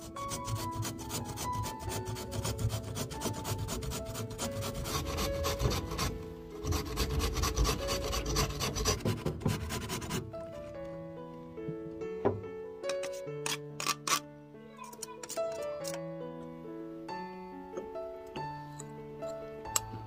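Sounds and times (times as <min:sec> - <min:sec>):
potato grated on metal grater: 0:00.0 - 0:10.2.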